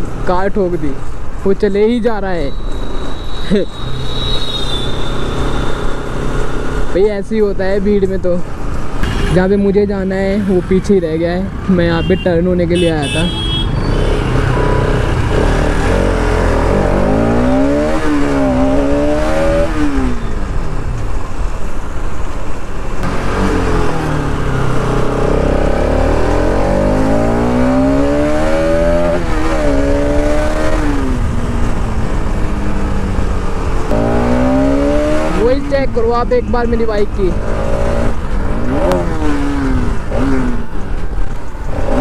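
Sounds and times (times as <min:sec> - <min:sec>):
motorcycle engine accelerating: 0:13.8 - 0:20.4, 0:23.0 - 0:35.6.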